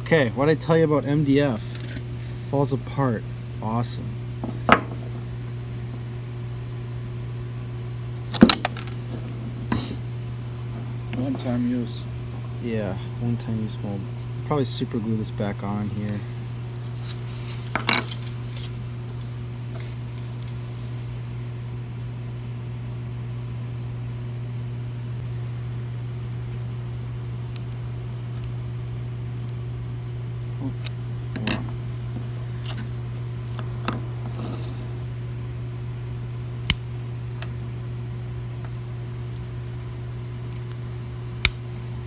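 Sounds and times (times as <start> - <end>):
steady low hum: 0.0 - 42.0
tools handled on work surface: 17.1 - 18.7.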